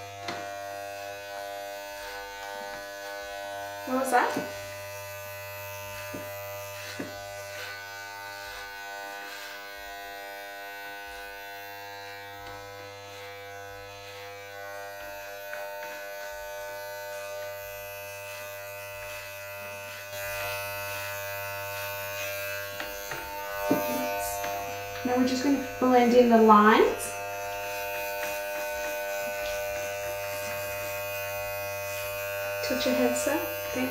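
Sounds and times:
hair clippers buzzing: 0.0 - 33.9.

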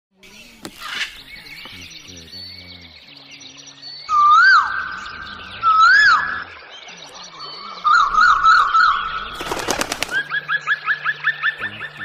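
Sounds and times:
birds chirping: 0.2 - 12.0.

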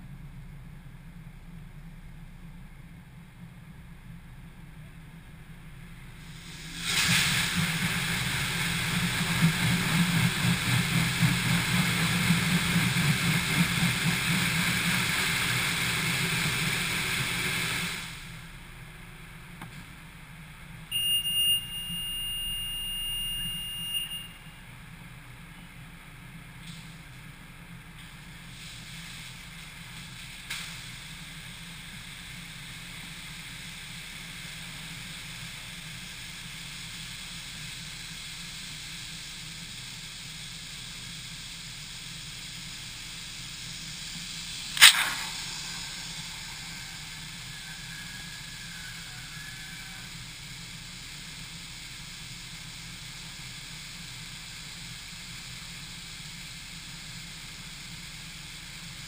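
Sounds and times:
high-pressure water spray hiss: 6.1 - 18.8, 26.6 - 59.0
small click: 44.7 - 45.5
sharp bang: 44.7 - 47.4.

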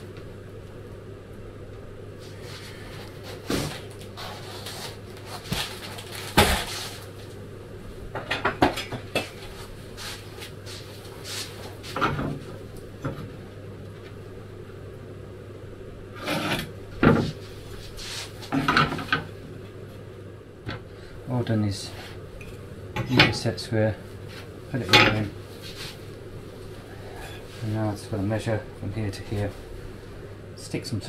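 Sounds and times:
steady low hum: 0.0 - 31.0
foam sheet and tools handled: 2.6 - 7.1.

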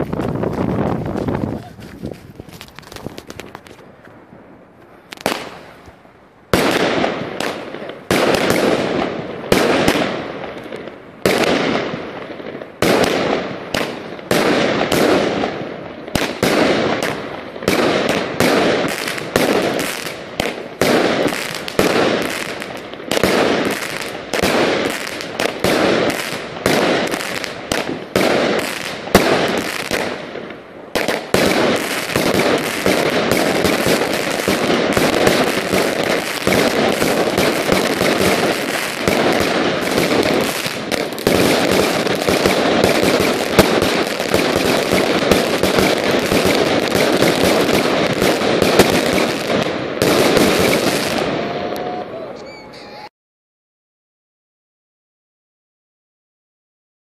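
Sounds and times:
fireworks battery firing: 12.8 - 52.6.

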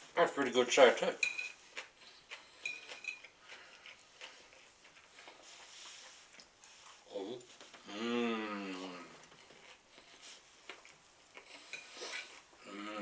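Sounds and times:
fork scraping a plate: 1.2 - 3.3, 11.4 - 12.5.

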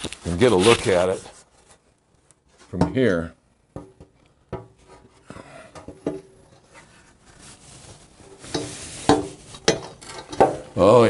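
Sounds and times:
soft rubbing: 0.0 - 2.8, 4.7 - 10.2.

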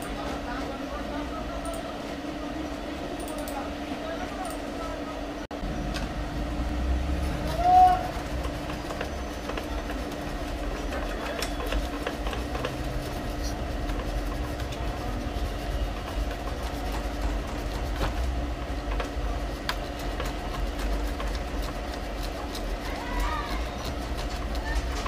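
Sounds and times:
low mechanical hum: 0.0 - 25.0
cloth rubbing on rail: 7.2 - 25.0.

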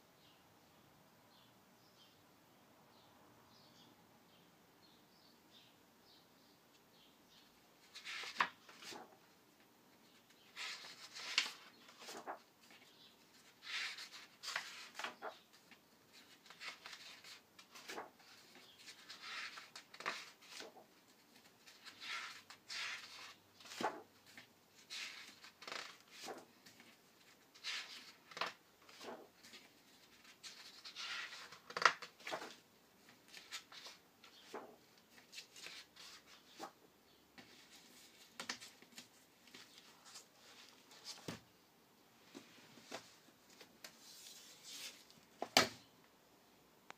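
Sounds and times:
book pages turning: 7.8 - 9.1, 10.1 - 36.8, 37.4 - 41.4, 42.3 - 45.8.

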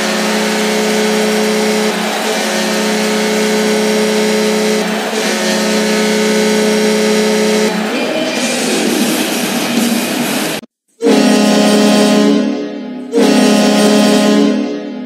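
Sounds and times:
arena goal horn blasts: 0.0 - 8.0, 10.5 - 15.0
crowd noise: 0.0 - 10.7.

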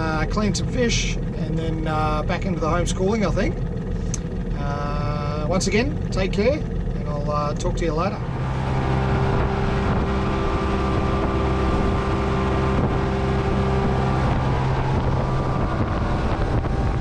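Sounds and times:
outboard motor running: 0.0 - 17.0
wind buffeting microphone: 0.0 - 17.0
water rushing from wake: 8.2 - 17.0.

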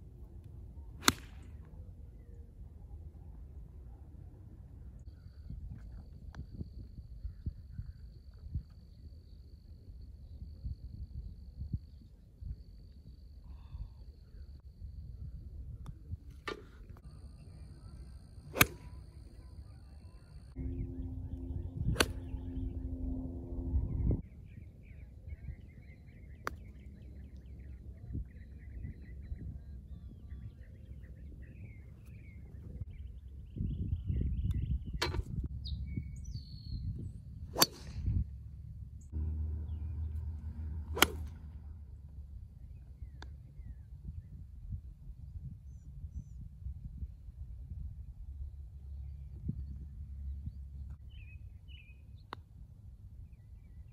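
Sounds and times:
low steady hum: 0.0 - 53.9
wind rumble on microphone: 0.0 - 53.9
golf club striking ball: 1.0 - 1.4, 18.5 - 19.0, 20.6 - 23.0, 37.5 - 38.1, 40.8 - 41.5
birds chirping faintly: 16.8 - 46.5.

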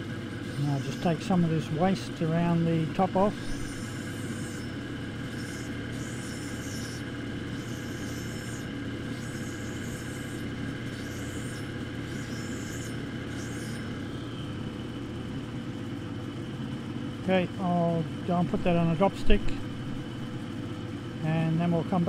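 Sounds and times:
grinding machine motor humming: 0.0 - 22.0
hissy wet grinding of glass: 3.4 - 13.9.

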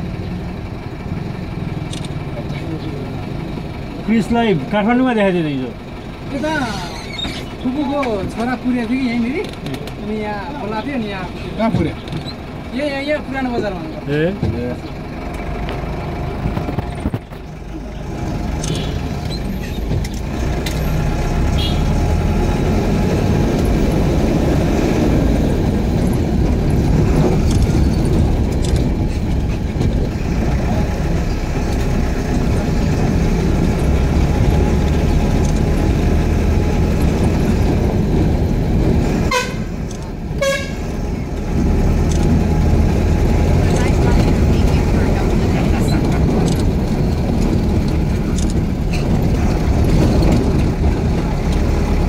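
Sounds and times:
vehicle engine and road noise: 0.0 - 52.0
car horn bursts: 39.3 - 39.8, 40.4 - 40.8.

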